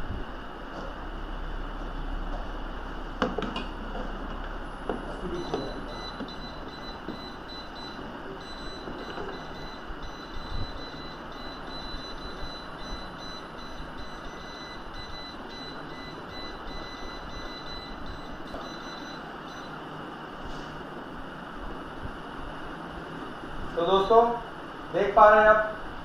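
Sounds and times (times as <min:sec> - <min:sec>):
faint high steady tones: 0:00.0 - 0:20.3
steady background noise: 0:00.0 - 0:26.0.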